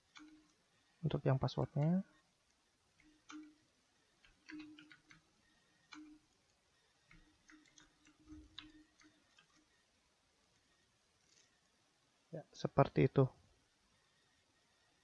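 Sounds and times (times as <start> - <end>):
keyboard typing clicks: 3.0 - 3.6, 4.2 - 5.3, 5.9 - 6.4, 7.0 - 9.7.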